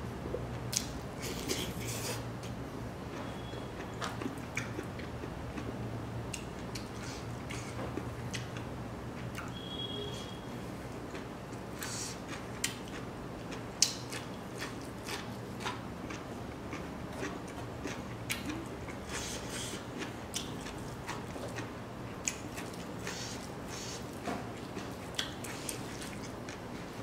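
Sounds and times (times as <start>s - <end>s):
person chewing crunchy food: 11.1s - 26.7s.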